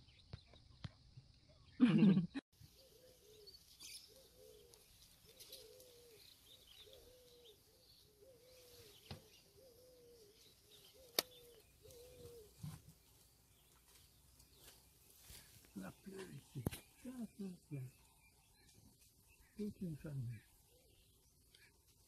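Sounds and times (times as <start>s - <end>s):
dove cooing: 2.8s - 12.8s
sharp clicks: 11.0s - 11.4s.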